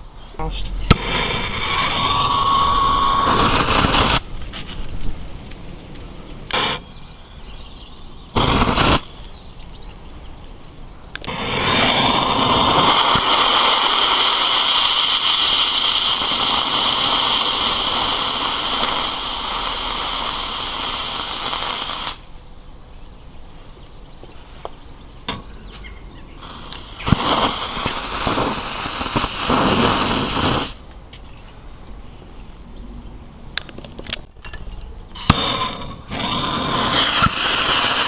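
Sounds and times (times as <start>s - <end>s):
loud rush of noise: 0.0s - 6.9s
fireworks fuse hissing: 0.7s - 5.6s, 6.5s - 6.9s, 8.3s - 9.5s, 11.2s - 22.3s, 26.3s - 30.9s, 35.1s - 38.0s.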